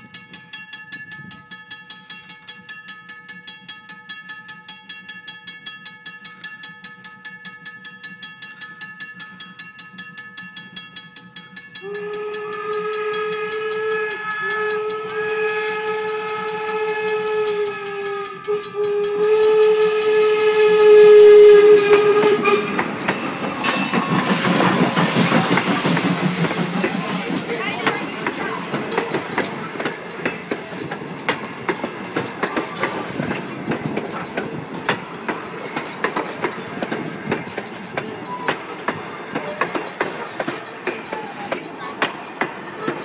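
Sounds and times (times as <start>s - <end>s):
crossing bell ringing: 0.0s - 43.0s
train wheels clacking over rail joints: 0.0s - 43.0s
steam locomotive whistle: 11.7s - 30.9s
steam hiss: 11.9s - 43.0s.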